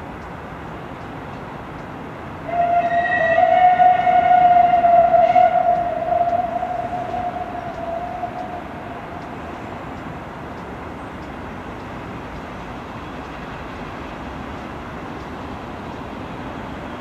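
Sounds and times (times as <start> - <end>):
approaching train noise: 0.0 - 17.0
steam locomotive whistle: 2.4 - 9.8.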